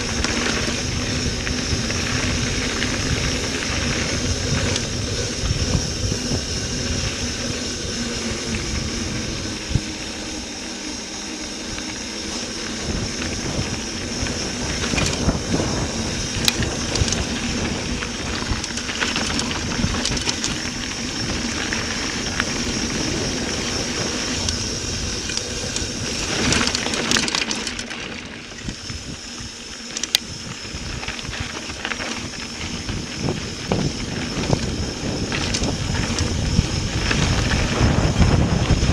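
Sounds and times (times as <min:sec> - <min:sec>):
bike knocking and rattling: 0:00.0 - 0:38.9
tyres on dirt and rock: 0:00.0 - 0:38.9
wind rushing: 0:32.8 - 0:38.9.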